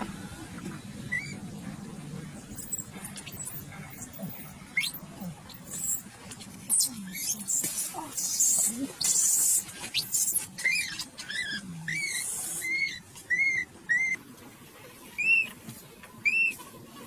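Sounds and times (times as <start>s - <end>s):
baby monkey squealing: 1.1s - 1.4s, 2.6s - 6.1s, 6.7s - 14.2s, 15.2s - 15.5s, 16.2s - 16.6s.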